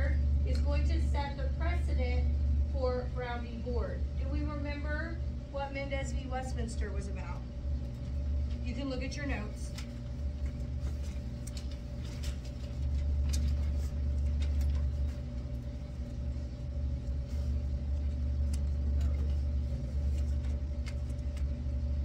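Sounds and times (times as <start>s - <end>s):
ventilation hum: 0.0s - 22.0s
paper rustling: 9.7s - 15.4s.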